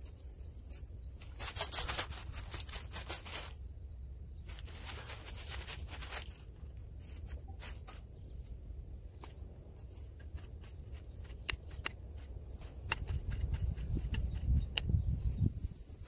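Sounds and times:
dry leaves crunching: 0:00.0 - 0:03.7, 0:04.4 - 0:08.6.

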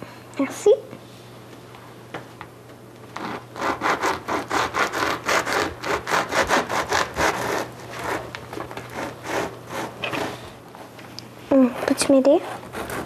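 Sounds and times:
bread knife sawing through crust: 0:03.2 - 0:10.6, 0:11.8 - 0:13.0.

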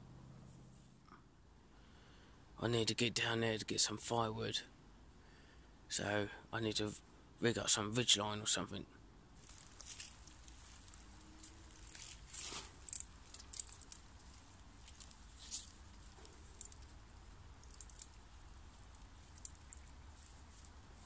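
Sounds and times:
hands tying cord around tree: 0:09.4 - 0:21.0.

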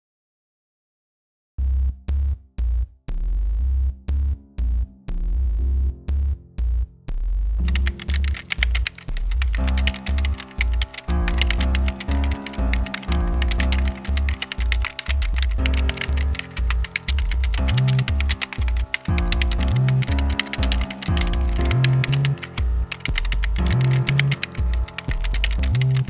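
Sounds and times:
music with deep bass notes: 0:01.6 - 0:26.0
rapid typing clicks: 0:07.7 - 0:26.0.

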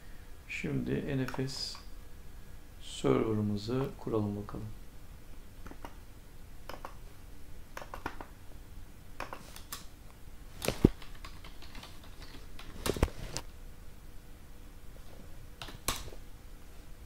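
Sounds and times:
keyboard and mouse clicking: 0:01.2 - 0:01.8, 0:05.6 - 0:06.0, 0:06.6 - 0:07.0, 0:07.7 - 0:08.3, 0:09.2 - 0:09.9, 0:10.6 - 0:13.1, 0:15.6 - 0:16.1.

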